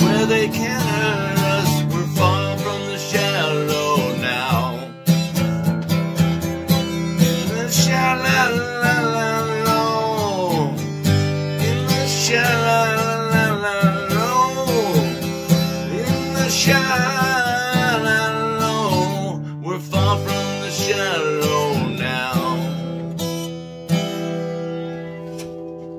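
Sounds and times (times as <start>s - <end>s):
strummed acoustic guitar: 0.0s - 25.9s.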